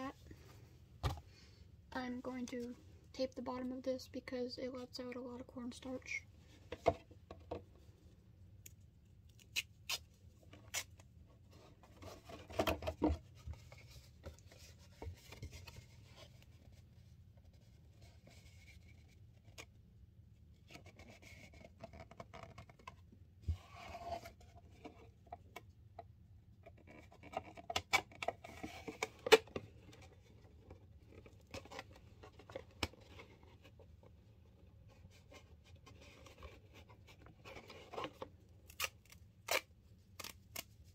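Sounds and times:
adhesive tape peeling and tearing: 0:09.3 - 0:10.1, 0:38.7 - 0:40.7.

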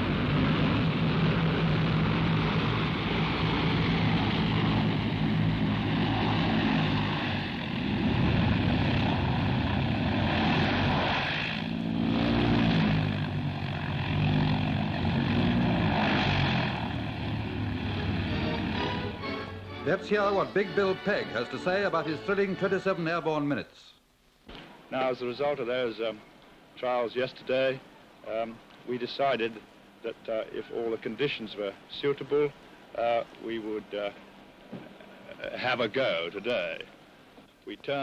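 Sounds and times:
propeller aircraft engines running: 0:00.0 - 0:22.9.

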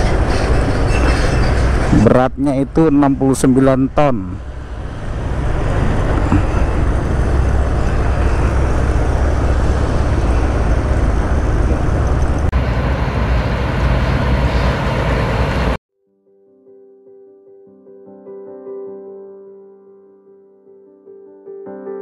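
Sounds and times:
road and traffic noise: 0:00.0 - 0:15.8.

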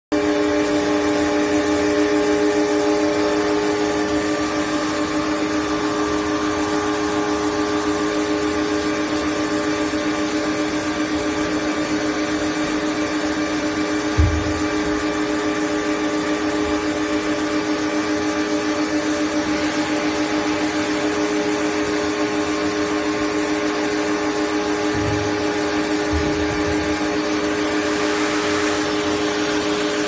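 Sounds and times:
machine drone with held tones: 0:00.2 - 0:30.0
low thump: 0:14.2 - 0:15.0, 0:26.1 - 0:26.9.

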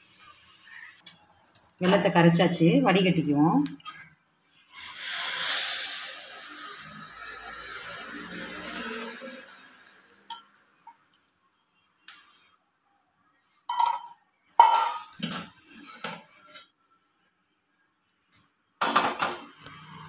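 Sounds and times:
kitchenware clinking and clattering: 0:13.7 - 0:16.7, 0:18.8 - 0:20.0.

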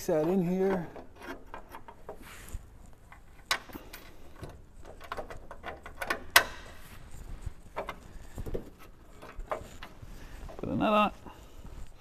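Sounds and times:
metal bracket clicks and knocks: 0:03.1 - 0:06.8.

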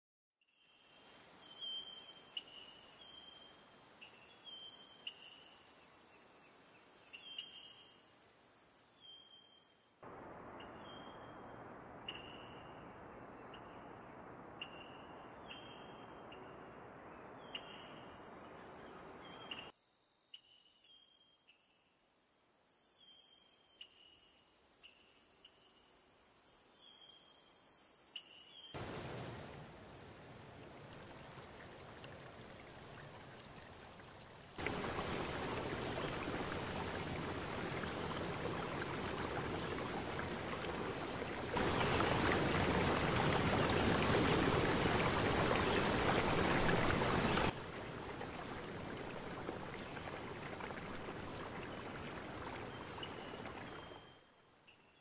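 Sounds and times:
insect chorus: 0:00.5 - 0:11.4, 0:12.0 - 0:55.0
small waterfall rushing: 0:28.8 - 0:54.0.

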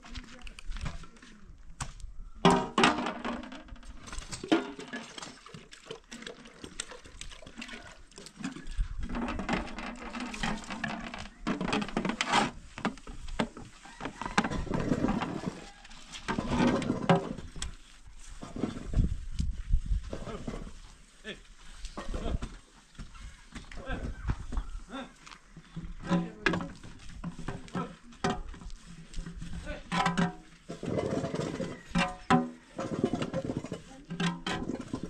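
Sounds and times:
metal basin knocks and clinks: 0:02.4 - 0:05.5, 0:29.8 - 0:35.0
water splashing in metal basin: 0:04.1 - 0:11.7.

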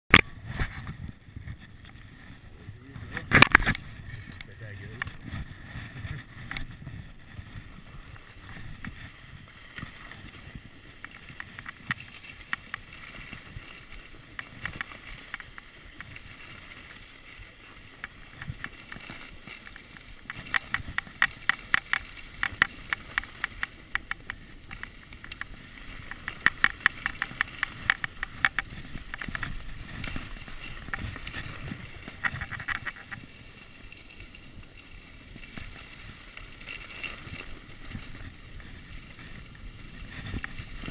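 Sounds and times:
ski swishing over snow: 0:00.4 - 0:40.9
rapid clicking and rattling: 0:09.6 - 0:40.9.

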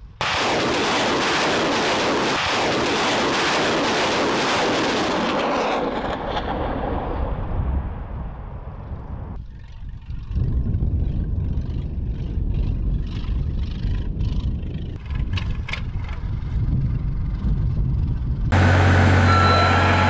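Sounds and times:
rocket salvo blast with crackling: 0:00.1 - 0:09.4
truck engine rumble: 0:15.0 - 0:20.0.

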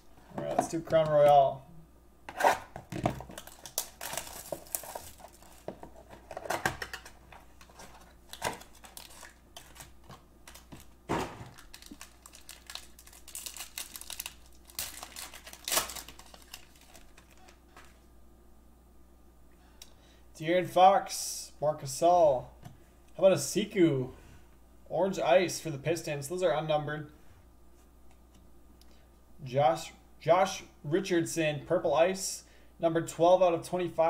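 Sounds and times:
foil wrapper crinkling: 0:03.2 - 0:06.1, 0:06.8 - 0:18.0.

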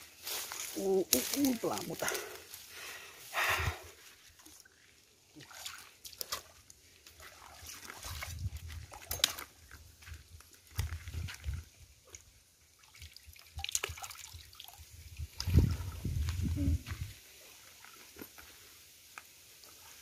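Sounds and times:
rustling undergrowth: 0:00.0 - 0:05.2, 0:14.9 - 0:20.0
boots wading in shallow water: 0:00.1 - 0:20.0
small splashes: 0:04.2 - 0:16.1.

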